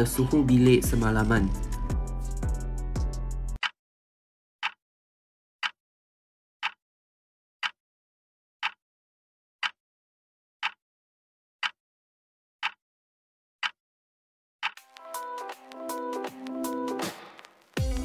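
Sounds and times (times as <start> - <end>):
clock ticking: 9.6 - 9.8, 14.6 - 17.0.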